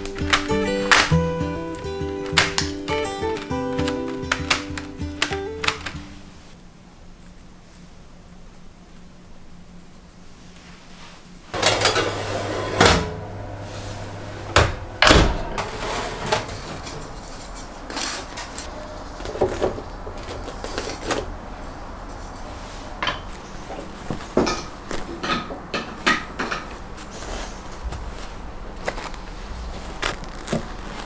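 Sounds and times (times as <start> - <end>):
low steady oven hum: 6.0 - 30.4.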